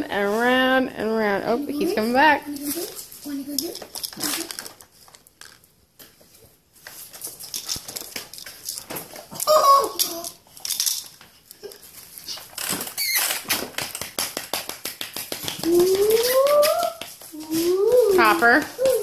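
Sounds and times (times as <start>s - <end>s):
claws clicking on hardwood floor: 6.8s - 19.0s
puppy yelp: 9.4s - 10.2s.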